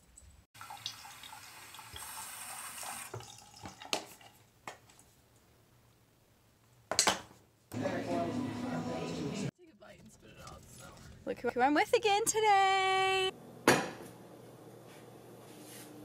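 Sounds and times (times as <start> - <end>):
sink faucet running: 0.6 - 3.9.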